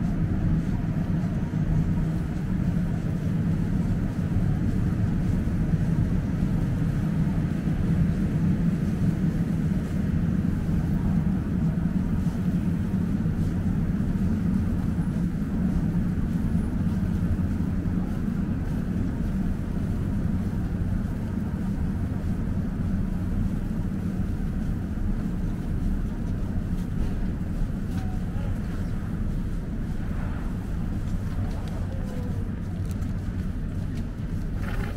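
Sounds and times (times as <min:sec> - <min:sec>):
low rumble of city street: 0:00.0 - 0:34.9.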